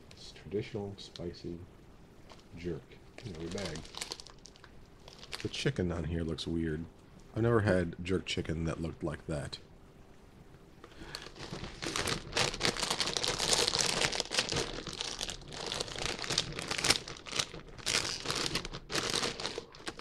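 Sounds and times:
chip bag crinkling: 3.2 - 5.7, 11.0 - 20.0.

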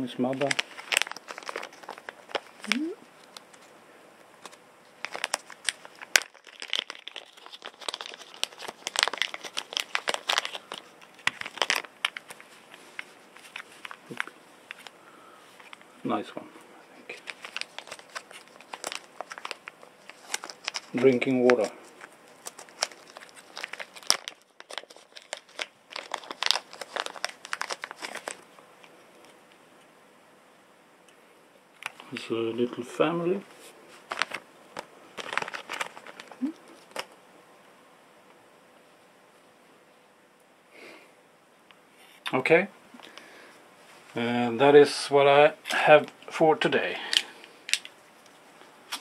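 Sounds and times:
plastic packaging crinkling: 0.2 - 3.7, 4.3 - 15.9, 17.1 - 29.4, 33.6 - 37.2, 47.0 - 49.0.

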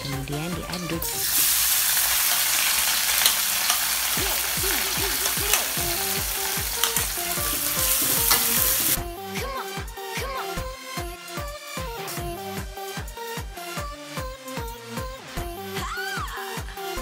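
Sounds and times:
background music with steady beat: 0.0 - 17.0
spice paste sizzling in oil: 1.0 - 9.0
spoon clicking against pan: 3.1 - 4.0, 6.7 - 7.2, 7.8 - 8.7.

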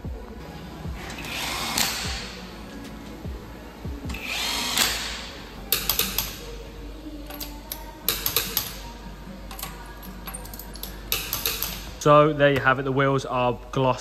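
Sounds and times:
impact wrench whirring: 1.0 - 2.4, 4.0 - 6.4
torque wrench clicking: 4.1 - 6.4, 7.3 - 8.8, 9.5 - 12.0.

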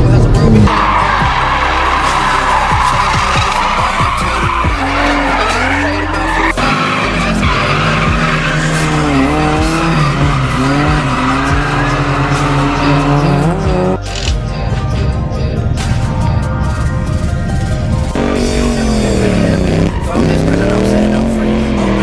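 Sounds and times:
car engines running: 0.0 - 22.0
music with steady bass line: 0.0 - 22.0
tyres squealing: 0.7 - 14.0.

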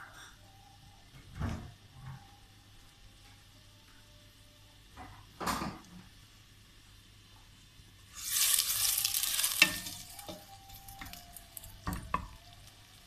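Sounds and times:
onions sizzling in hot oil: 5.8 - 13.0
wooden spoon stirring in pot: 8.2 - 13.0.

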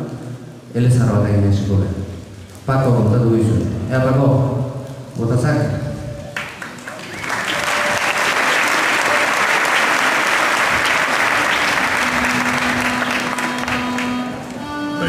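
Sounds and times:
audience applauding: 6.4 - 14.7.

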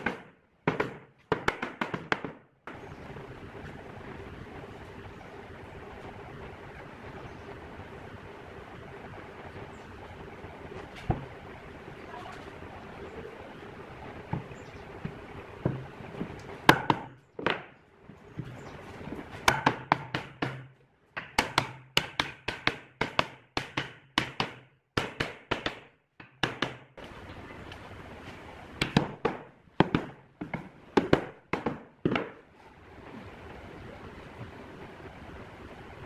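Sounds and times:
wooden mallet knocking on boards: 28.8 - 32.4.

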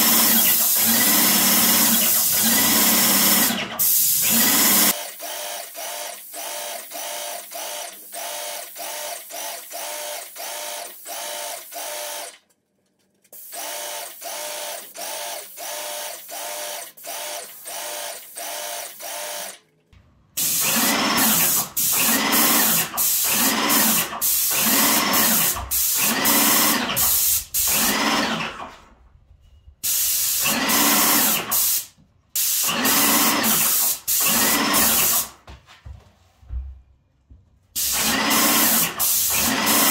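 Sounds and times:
paint sprayer pump pulsing: 0.0 - 12.2, 20.4 - 28.4, 32.6 - 35.3, 37.8 - 39.9.

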